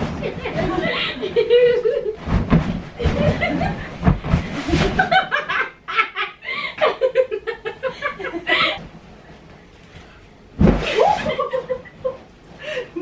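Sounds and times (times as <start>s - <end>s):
people laughing: 0.2s - 2.2s.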